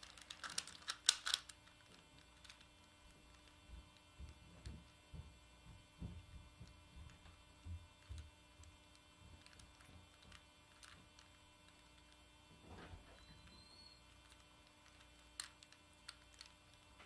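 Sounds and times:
plastic puzzle clicking: 0.0 - 2.6
low electrical hum: 0.0 - 17.0.

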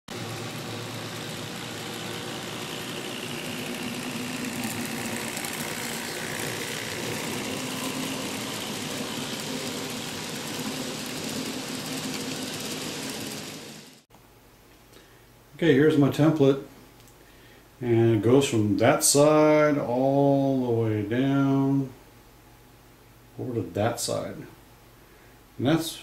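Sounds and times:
model train running on track: 0.1 - 14.0.

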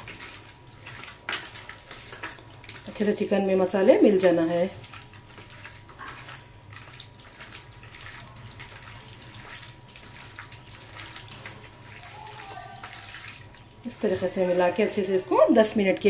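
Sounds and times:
wet squelching of raw meat: 3.8 - 15.0.

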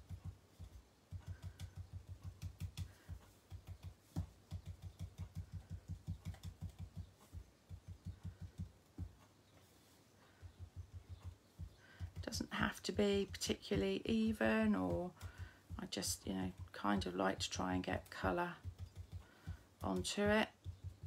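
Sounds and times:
ink dauber dabbing on paper: 10.4 - 21.0.

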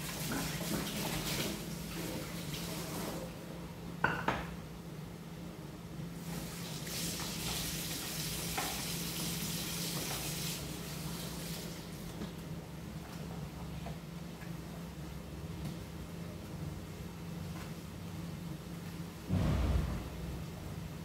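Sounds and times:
food frying in a pan: 6.2 - 11.8.

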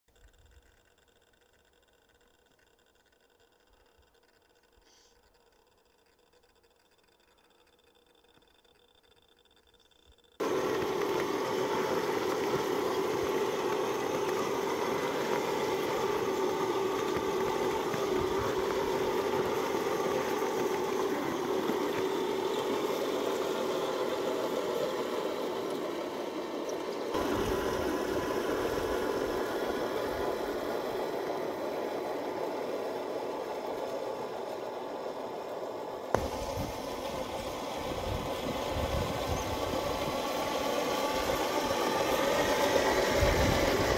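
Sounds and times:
toy tank drive hum: 0.0 - 43.9
track noise: 10.4 - 43.9.

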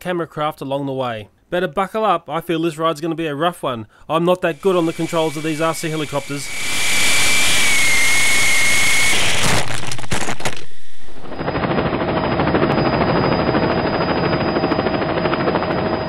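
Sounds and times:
rc helicopter motor whine: 4.5 - 16.0
rushing rotor wash: 4.6 - 9.8.

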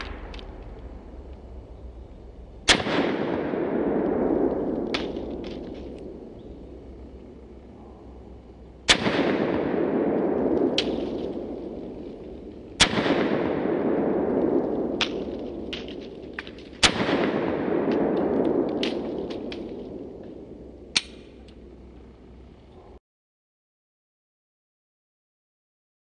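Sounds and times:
sharp clicks: 0.0 - 1.4, 17.9 - 21.6
pistol shots echoing: 2.6 - 21.4.

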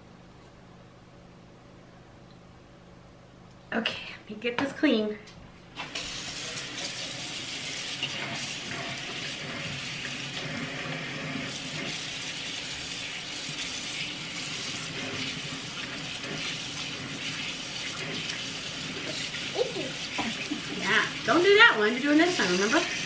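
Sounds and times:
faucet running into steel sink: 5.8 - 23.0.

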